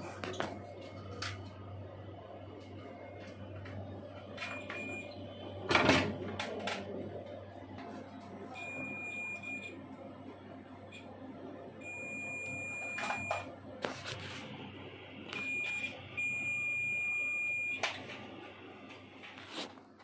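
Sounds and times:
projector beeps: 4.4 - 6.0, 8.5 - 9.9, 11.8 - 13.6, 14.5 - 18.2.

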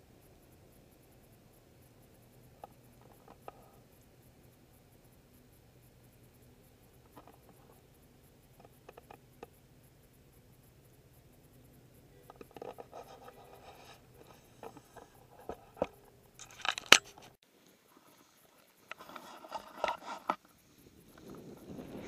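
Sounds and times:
faint low hum: 0.0 - 22.0
small clicks: 0.2 - 22.0
rustling and scraping: 12.2 - 22.0.

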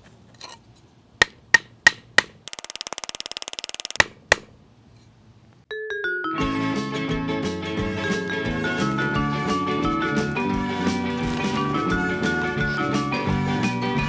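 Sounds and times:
rattling ticks: 2.4 - 4.5
background music: 5.7 - 14.0.

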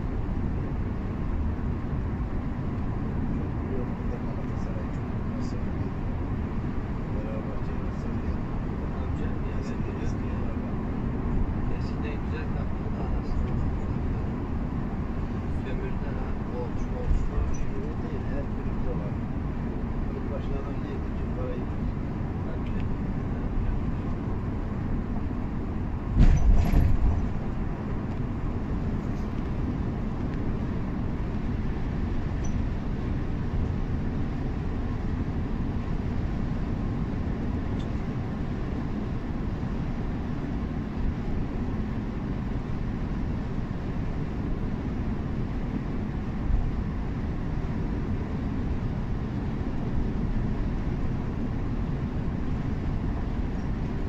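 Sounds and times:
coach engine and tyre rumble: 0.0 - 54.0
loud thump: 26.1 - 27.3.

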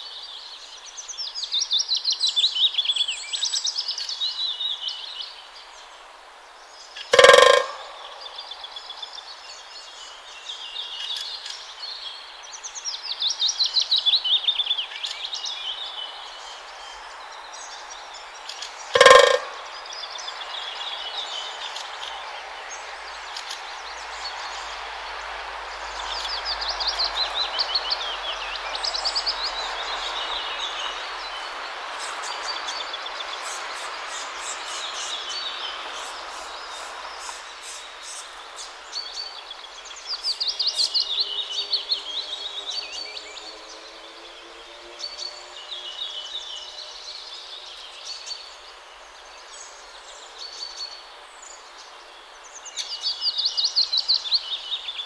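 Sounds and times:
distant traffic hiss: 0.0 - 55.0
songbirds singing: 0.0 - 55.0
loud pitched call: 7.1 - 8.4, 19.0 - 19.7.

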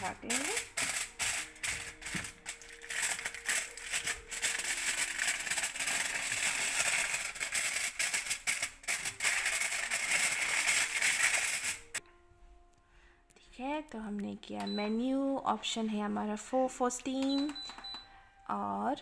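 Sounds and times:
aluminium foil crinkling: 0.0 - 12.0.

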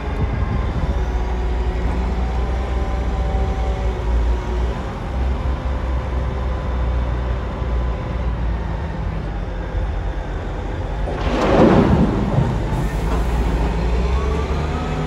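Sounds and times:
diesel engine running under load: 0.0 - 15.0
loose material pouring into truck: 11.0 - 13.8.

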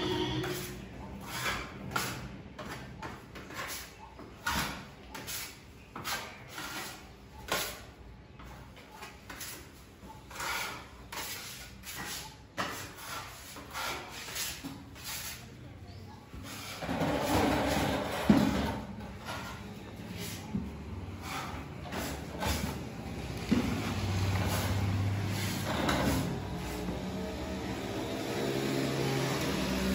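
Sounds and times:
putty knife scraping brick wall: 0.0 - 28.6.

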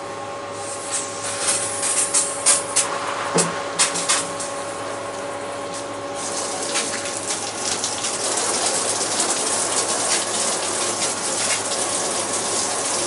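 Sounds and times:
coolant spraying from hose: 6.1 - 13.0.

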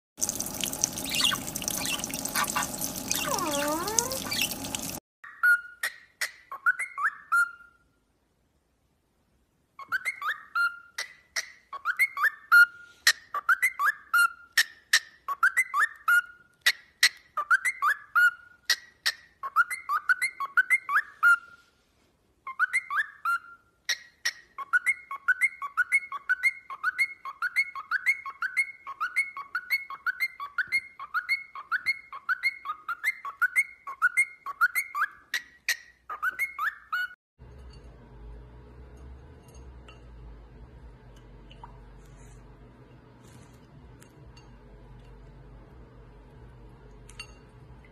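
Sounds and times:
faint low hum: 37.4 - 47.9.

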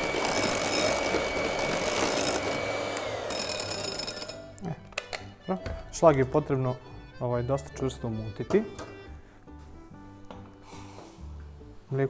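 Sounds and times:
electric hand mixer whining: 0.0 - 4.6.

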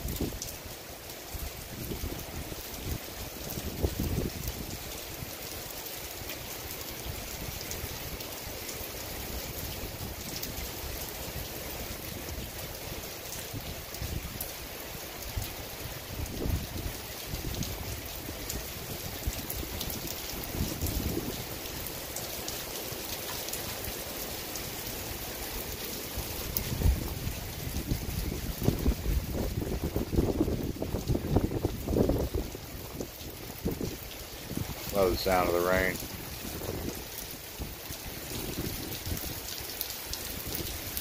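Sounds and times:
rain falling on cars: 0.0 - 41.0
low rumbles or gusts: 15.4 - 21.6, 26.1 - 39.4.

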